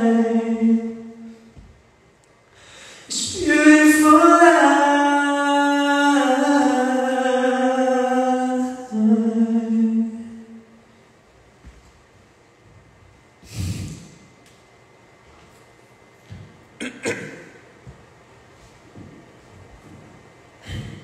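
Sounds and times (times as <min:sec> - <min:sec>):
man singing a cappella: 0:00.0 - 0:01.3, 0:03.1 - 0:10.6.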